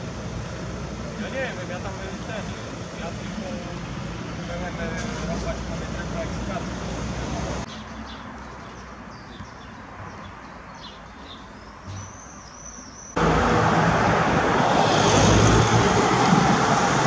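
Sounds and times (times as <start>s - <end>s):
road traffic: 0.0s - 17.0s
car passing close by: 13.2s - 17.0s.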